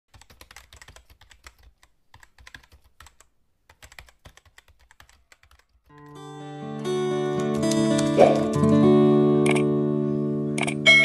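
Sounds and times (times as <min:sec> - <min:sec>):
typing on computer keyboard: 0:00.1 - 0:06.2
music: 0:05.9 - 0:11.0.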